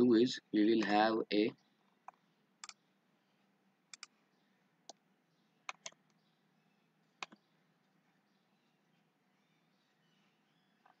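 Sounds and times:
computer mouse clicking: 2.0s - 2.8s, 3.9s - 4.1s, 5.7s - 6.2s, 7.2s - 7.4s.

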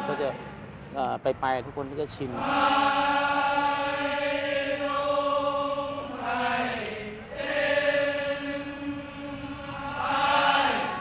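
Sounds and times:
male chorus chanting held notes: 0.0s - 0.9s, 1.8s - 11.0s.

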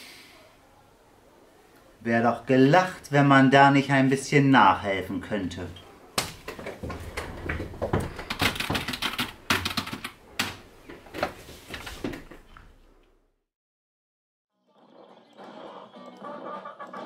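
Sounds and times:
typing on computer keyboard: 8.2s - 10.5s.

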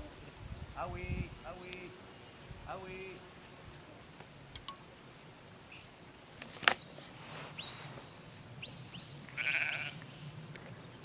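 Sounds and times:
sheep bleating: 9.3s - 10.0s.

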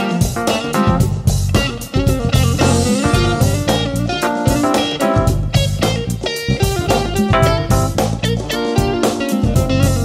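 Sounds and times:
plucked guitar music: 0.0s - 10.0s.

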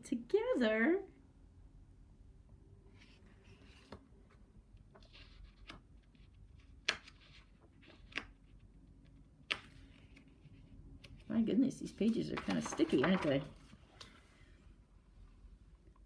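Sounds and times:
book pages rustling: 2.9s - 14.5s
paper ticks and clicks: 6.7s - 8.4s.

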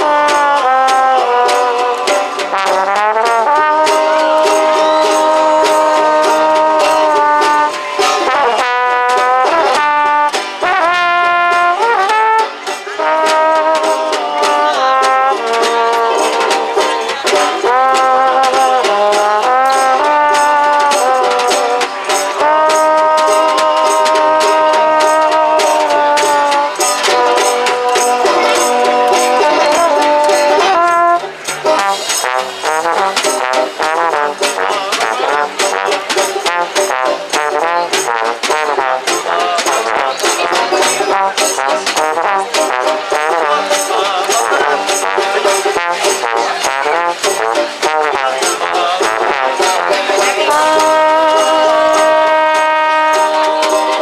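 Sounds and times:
double bass: 0.0s - 54.0s
trombone: 0.0s - 54.0s
brushes on snare and cymbal: 19.7s - 54.0s.

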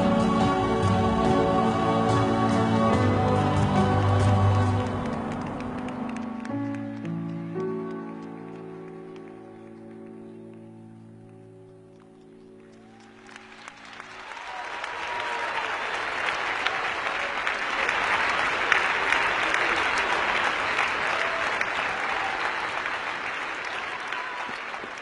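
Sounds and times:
held music chord: 0.0s - 12.7s
audience applause: 0.0s - 25.0s.

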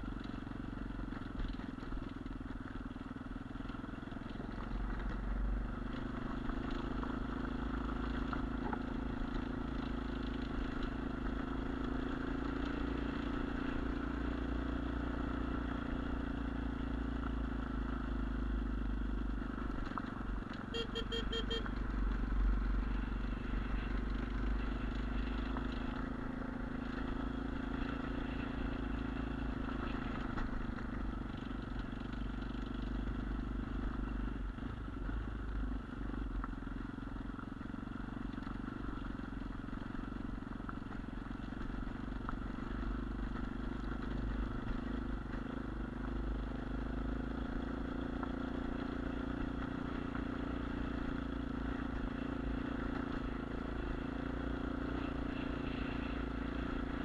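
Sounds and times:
dirt bike engine running: 0.0s - 57.0s.

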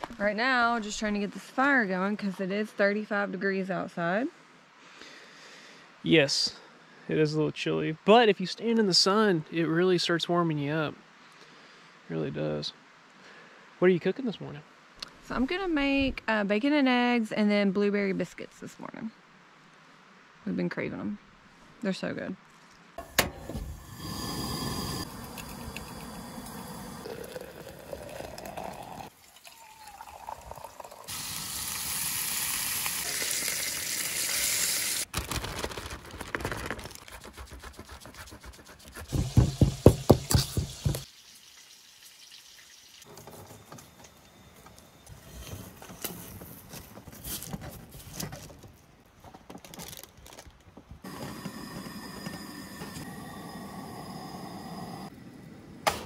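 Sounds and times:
gas camp stove burning: 23.0s - 29.1s, 51.0s - 55.1s
food sizzling: 23.4s - 35.1s, 39.1s - 43.1s
butter grating on box grater: 37.0s - 39.5s.

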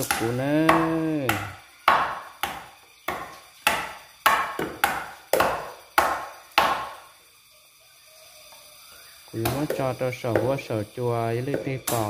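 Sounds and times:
knife chopping on wooden block: 0.0s - 6.9s.

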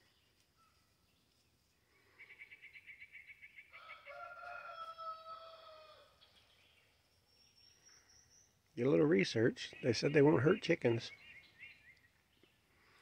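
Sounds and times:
rooster crowing: 3.7s - 6.2s.

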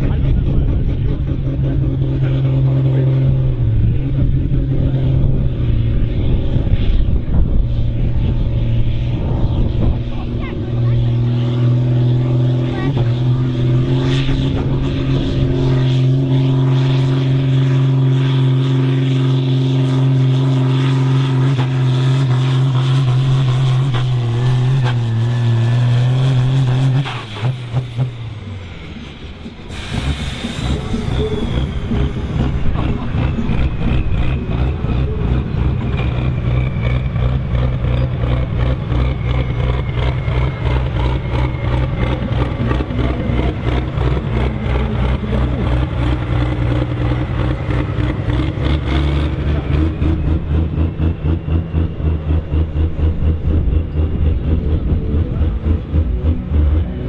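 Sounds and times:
tractor diesel engine straining: 19.9s - 57.0s.

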